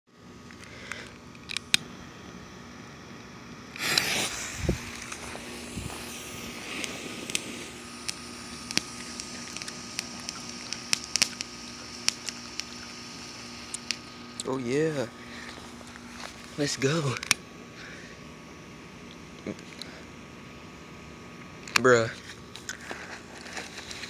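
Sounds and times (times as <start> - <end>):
firework fountain hissing sparks: 3.7 - 17.3, 22.7 - 24.0
crackling pops: 3.7 - 17.4.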